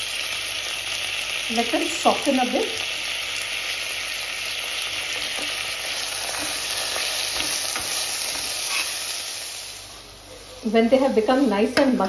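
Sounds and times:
vegetables sizzling in hot oil: 0.0 - 12.0
ladle scraping a pot: 6.3 - 9.0.

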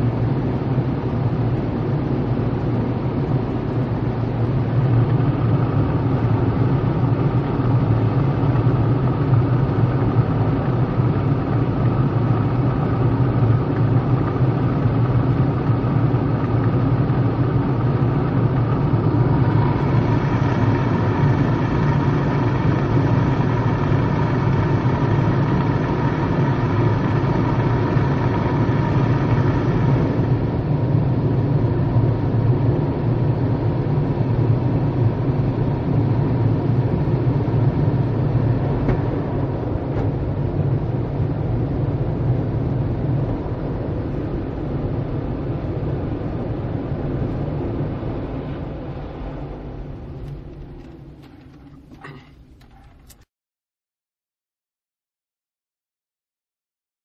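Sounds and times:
high machine whine: 0.0 - 40.4
car wash machinery rumbling: 0.0 - 53.2.

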